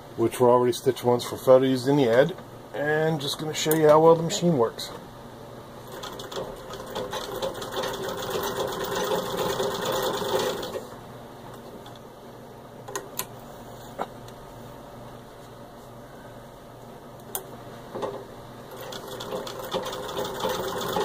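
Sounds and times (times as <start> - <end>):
treadle sewing machine stitching: 5.9 - 10.8, 18.7 - 21.0.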